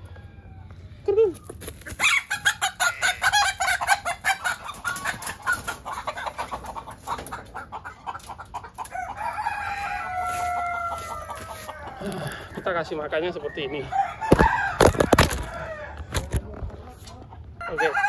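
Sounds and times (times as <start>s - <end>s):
chickens clucking: 0.0s - 18.0s
rooster crowing: 2.0s - 4.0s, 8.9s - 16.1s, 17.6s - 18.0s.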